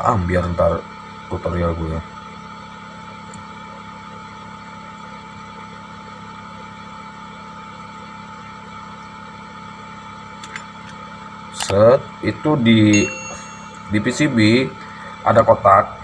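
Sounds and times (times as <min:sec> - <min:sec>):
thin whine: 0:12.9 - 0:14.7
machine hum: 0:13.0 - 0:15.2.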